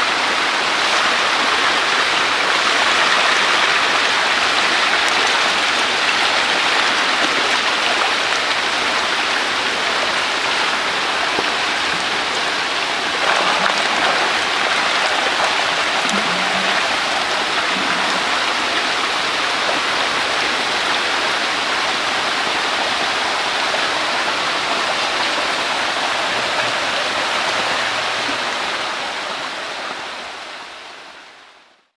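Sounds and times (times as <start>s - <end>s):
fish splashing at water surface: 13.0s - 19.0s.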